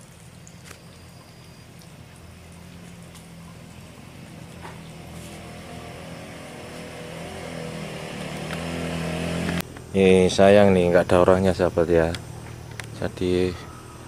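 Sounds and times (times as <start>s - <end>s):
vehicle engine approaching: 0.2s - 14.0s.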